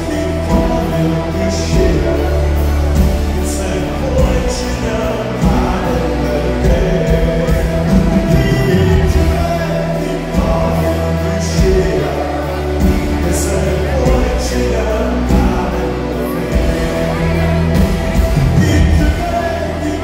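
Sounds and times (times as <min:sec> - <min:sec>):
heavy bass: 0:00.0 - 0:20.0
live band playing loudly: 0:00.0 - 0:20.0
sung vocals: 0:00.0 - 0:20.0.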